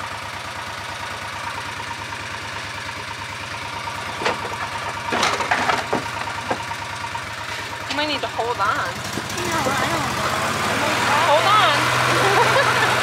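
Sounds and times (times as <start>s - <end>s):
small engine chugging: 0.0s - 13.0s
sharp knocks and rattles: 4.0s - 6.9s.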